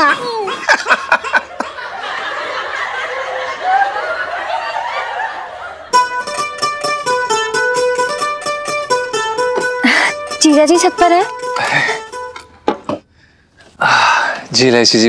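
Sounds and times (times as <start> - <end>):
people laughing: 0.2 - 6.0
plucked string music: 5.9 - 13.0.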